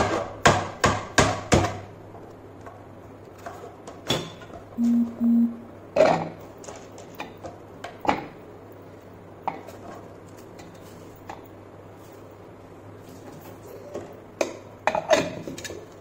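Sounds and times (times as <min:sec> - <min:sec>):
short low hum: 0:04.8 - 0:05.8.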